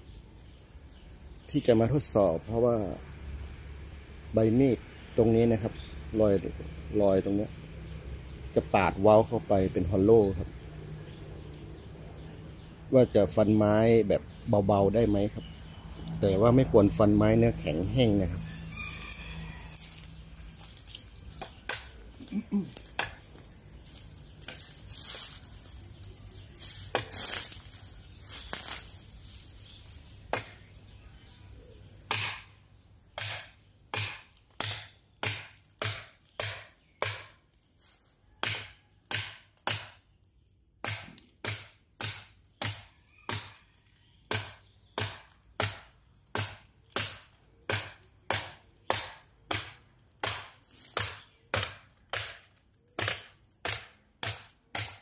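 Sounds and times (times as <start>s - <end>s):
knife chopping bamboo: 21.4s - 21.9s, 26.9s - 27.1s, 30.3s - 30.6s, 32.1s - 32.5s, 33.2s - 37.4s, 38.4s - 40.0s, 40.8s - 43.6s, 44.3s - 55.0s.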